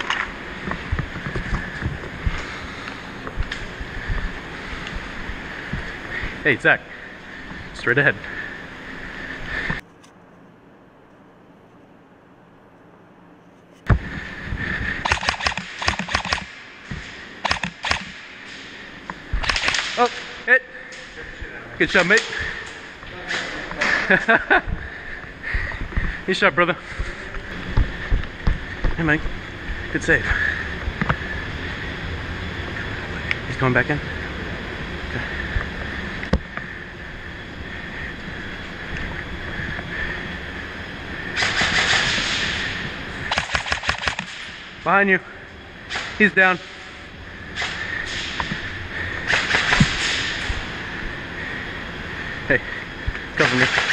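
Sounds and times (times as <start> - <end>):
sharp click: 15.0 - 16.5, 17.4 - 18.6, 19.4 - 20.2, 43.3 - 44.6
airsoft rifle shots: 15.0 - 18.6, 19.4 - 20.3, 41.4 - 44.7, 49.2 - 50.5, 53.4 - 53.9.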